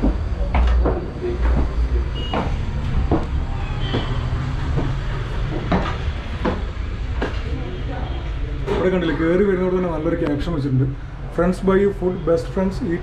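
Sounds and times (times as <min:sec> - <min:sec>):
footsteps on wooden stairs: 0:00.0 - 0:07.4.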